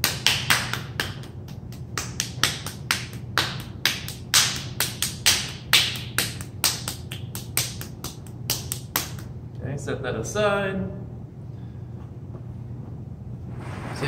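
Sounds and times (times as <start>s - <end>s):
hands clapping together: 0.0s - 9.3s.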